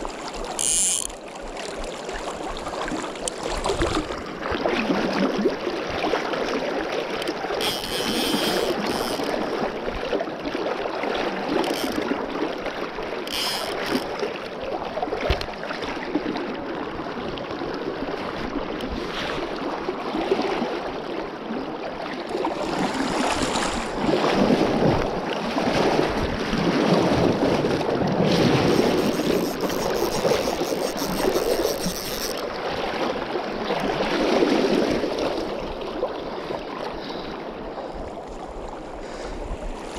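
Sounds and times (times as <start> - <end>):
river water rushing: 0.0 - 9.9, 28.4 - 35.6.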